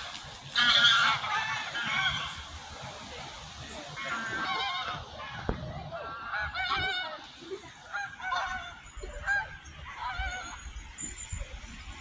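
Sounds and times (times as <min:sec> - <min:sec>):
geese honking: 0:00.0 - 0:02.6, 0:03.9 - 0:10.8.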